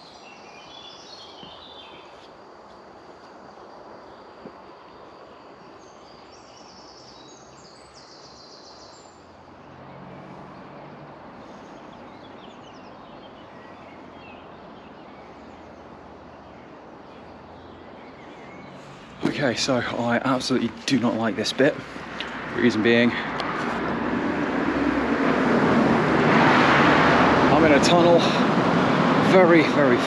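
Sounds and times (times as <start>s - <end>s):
small birds chirping: 0.0s - 23.9s
steady rushing background: 15.2s - 30.0s.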